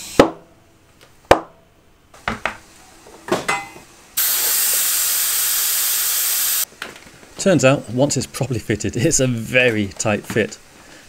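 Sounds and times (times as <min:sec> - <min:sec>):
air hissing: 0:04.2 - 0:06.7.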